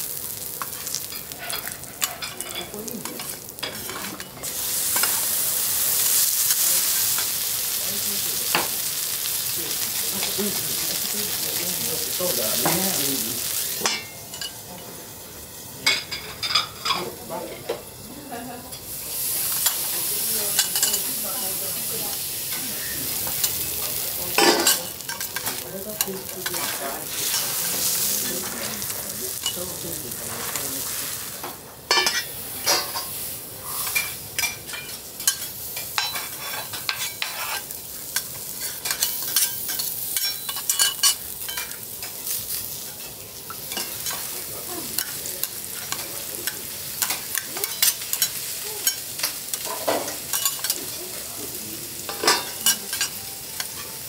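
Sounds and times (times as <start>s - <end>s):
onions sizzling in oil: 0.0s - 54.0s
metal spatulas scraping griddle: 31.9s - 42.2s.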